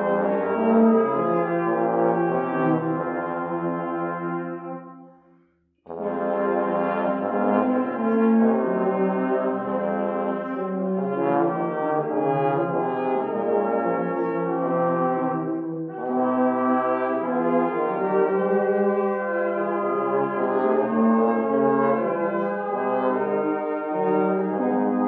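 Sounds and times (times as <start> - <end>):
brass ensemble playing: 0.0 - 5.2, 5.9 - 25.0.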